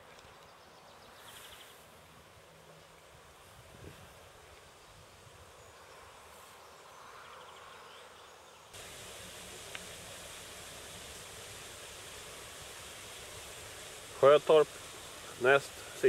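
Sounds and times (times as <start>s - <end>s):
faint outdoor ambience: 0.0s - 16.0s
steady rushing noise: 8.8s - 16.0s.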